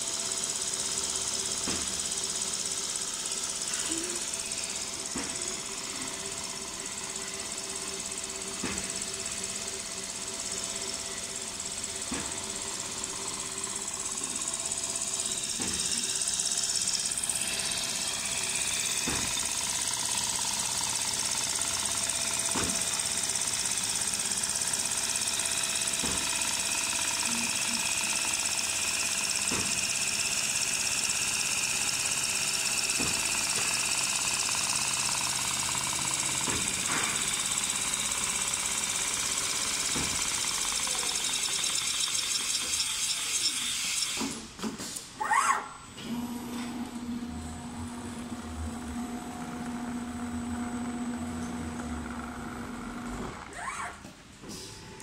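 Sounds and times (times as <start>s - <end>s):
quilting machine whirring: 0.0s - 45.1s, 46.0s - 55.0s
machine knock: 17.6s - 23.8s, 32.9s - 43.1s.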